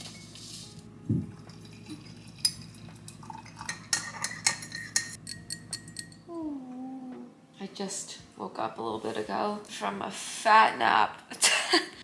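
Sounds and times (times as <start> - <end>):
spoon clinking in ceramic mug: 1.4 - 6.2.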